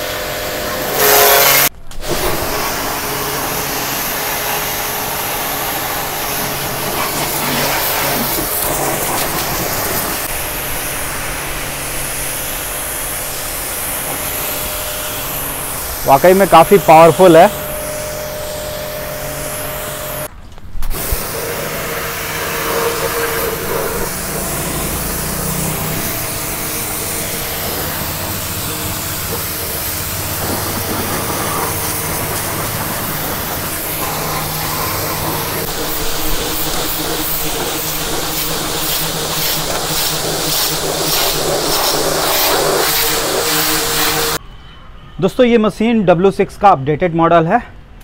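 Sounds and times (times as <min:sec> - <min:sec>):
high-pressure water jet hissing: 0:00.0 - 0:20.3, 0:20.9 - 0:44.4
pressure washer motor humming: 0:00.0 - 0:20.3, 0:20.9 - 0:44.4.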